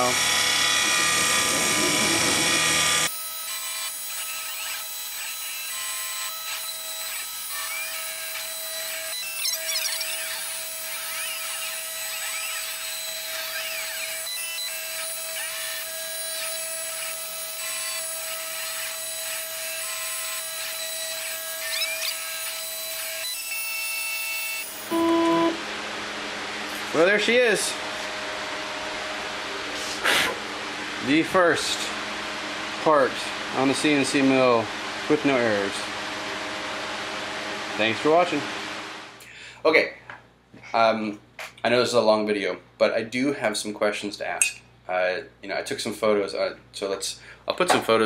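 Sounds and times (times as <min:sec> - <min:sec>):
motor whines gliding in pitch: 0:00.0 - 0:04.8, 0:05.7 - 0:23.4, 0:24.0 - 0:25.6
milling machine cutting metal: 0:00.0 - 0:25.6.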